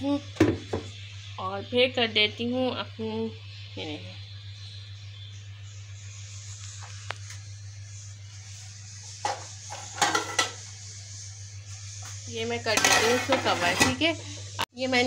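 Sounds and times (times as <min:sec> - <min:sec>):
steady low hum: 0:00.0 - 0:15.0
metallic clanks of cookware: 0:09.2 - 0:10.6, 0:12.7 - 0:14.1.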